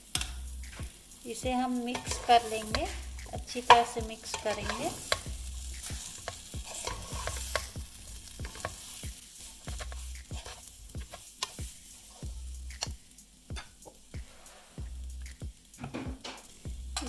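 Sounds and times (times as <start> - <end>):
metal spatula scraping metal pan: 1.7 - 12.2.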